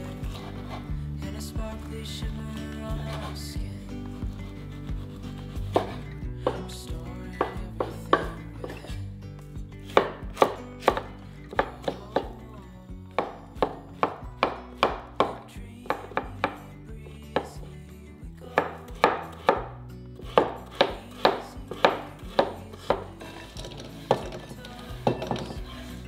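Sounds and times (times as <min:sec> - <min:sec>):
knife chopping on wooden board: 0:04.9 - 0:06.6, 0:07.4 - 0:08.8, 0:09.9 - 0:12.4, 0:13.2 - 0:16.6, 0:18.5 - 0:24.4.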